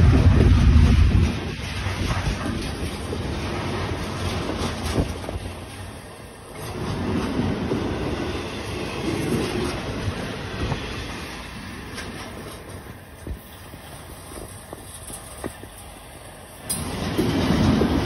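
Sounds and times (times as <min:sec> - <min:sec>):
train wheels rolling on rails: 0:00.0 - 0:18.0.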